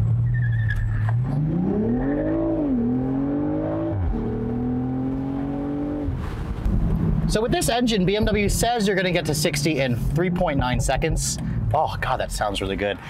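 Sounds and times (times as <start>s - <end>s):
car engine accelerating hard: 1.0s - 7.2s.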